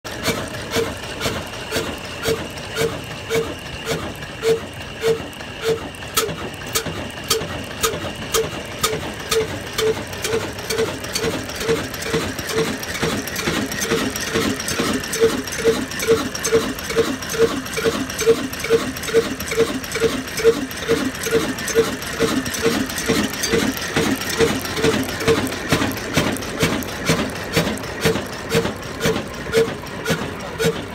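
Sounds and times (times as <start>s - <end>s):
diesel engine running: 0.1s - 30.9s.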